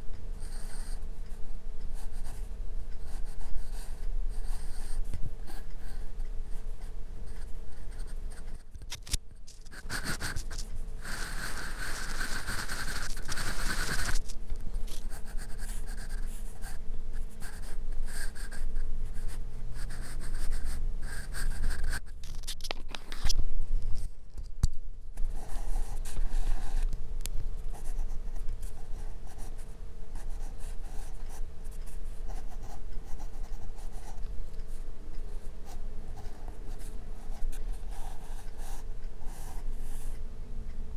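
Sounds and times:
faint steady hum: 0.0 - 40.9
pencil scratching on paper: 0.4 - 1.0, 2.0 - 8.6, 9.7 - 22.2, 27.7 - 34.7, 35.6 - 40.2.

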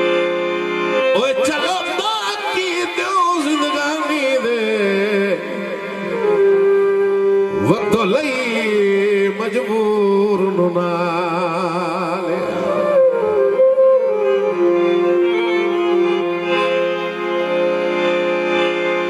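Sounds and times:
harmonium drone: 0.0 - 19.0
man singing folk song: 1.2 - 6.3, 7.6 - 12.6.

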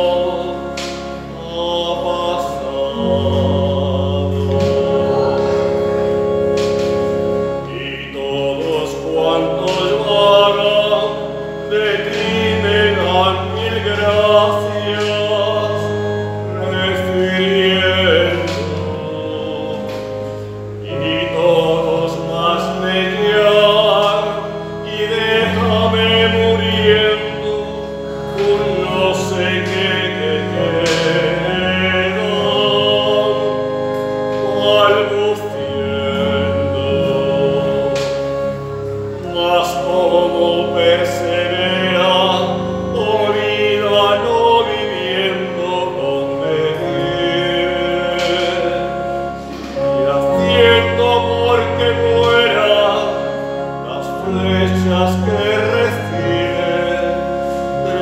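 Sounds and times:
man singing with vibrato: 0.0 - 58.0
organ chords on keyboard: 0.0 - 58.0.

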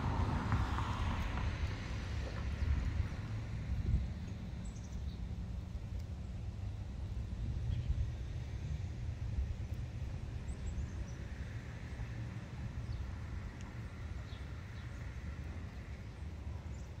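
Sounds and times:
steady low rumble: 0.0 - 17.0
small birds chirping: 4.2 - 6.4, 12.8 - 17.0.

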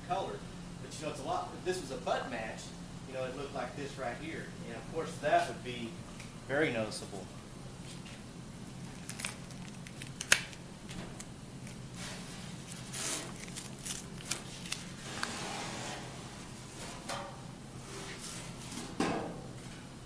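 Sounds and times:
steady low hum: 0.0 - 20.0
card clicking and rustling: 8.9 - 11.8, 12.7 - 14.9.

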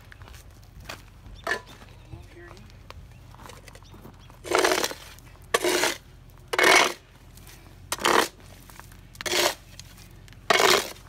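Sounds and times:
scraper blade on wet pavement: 4.4 - 7.1, 7.9 - 11.0.

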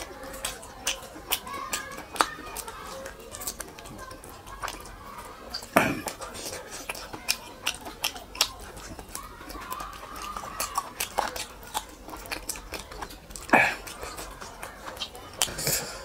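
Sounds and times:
wet mouth smacks: 0.0 - 3.8, 4.5 - 16.0
chewing chicken on bone: 0.0 - 16.0.

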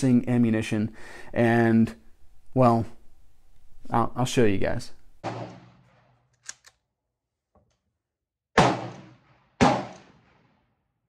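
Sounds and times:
rifle shots echoing: 5.2 - 6.2, 8.6 - 10.6.

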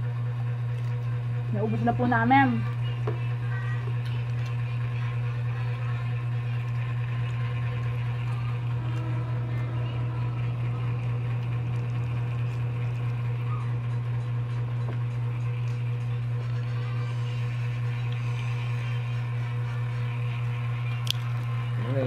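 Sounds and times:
steady low hum: 0.0 - 22.0
clicks and rustles of eating: 0.7 - 1.1, 3.8 - 4.7, 20.9 - 21.6.

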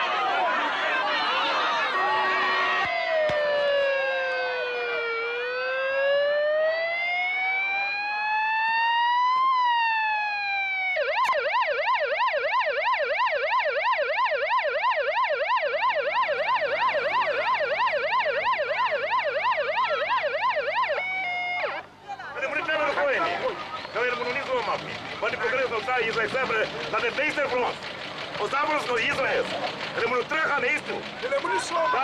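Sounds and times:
police siren wailing and yelping: 1.4 - 21.9.

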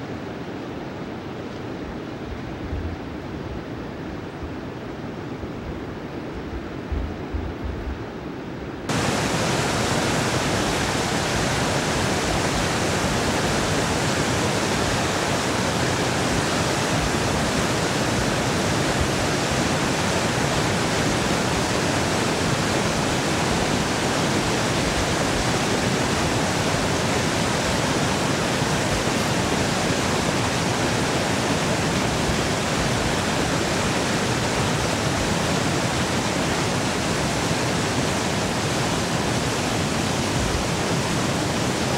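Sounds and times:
whitewater rushing from dam: 8.9 - 41.9.

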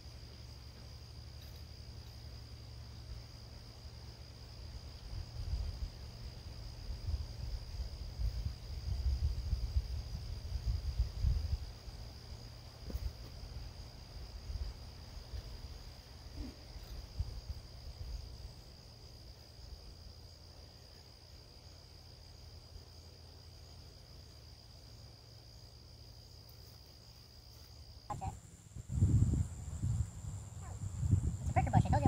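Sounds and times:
crickets trilling: 0.0 - 32.0
low rumble with soft bumps: 28.1 - 32.0.

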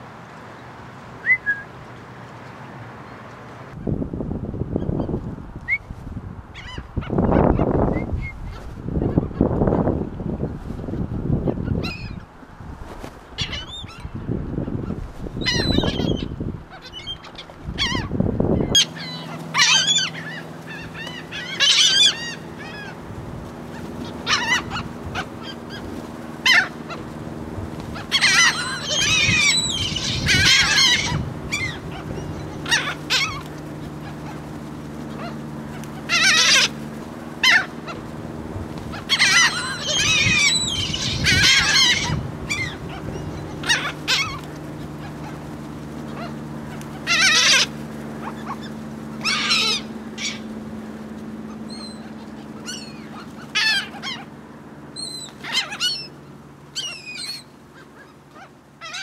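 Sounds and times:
gulls calling: 0.0 - 3.8, 6.5 - 59.0
steady low hum: 0.0 - 59.0.

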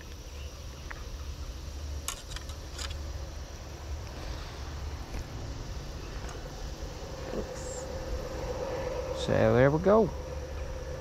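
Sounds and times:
quick clicks: 2.0 - 3.0
wind rumble on microphone: 3.5 - 11.0.

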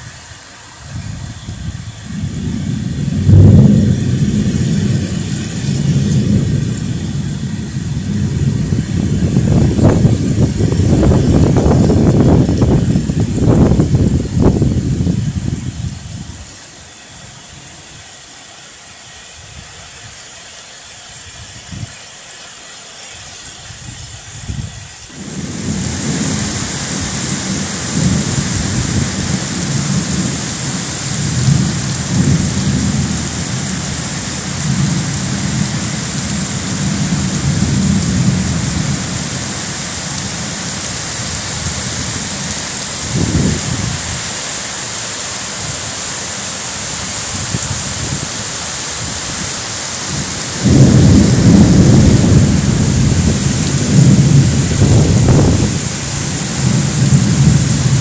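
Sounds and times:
gusting wind: 0.0 - 18.3, 23.4 - 58.0
heavy rain downpour: 0.0 - 58.0
low rumbling thunder: 0.9 - 16.4, 24.5 - 44.2, 49.0 - 58.0.

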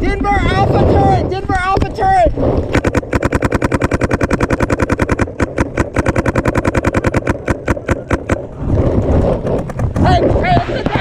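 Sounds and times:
paintball marker rapid fire: 2.7 - 11.0.

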